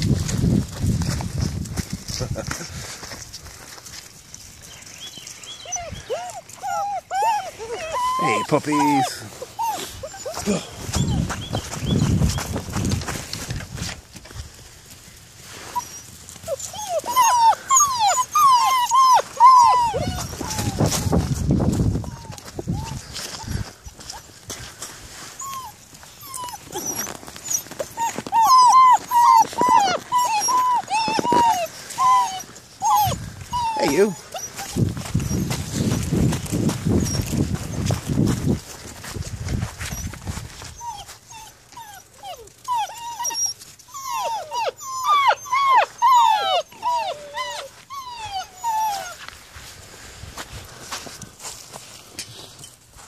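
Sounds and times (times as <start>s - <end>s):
puppies whining and yelping: 4.7s - 13.6s, 15.6s - 38.8s, 39.6s - 49.5s.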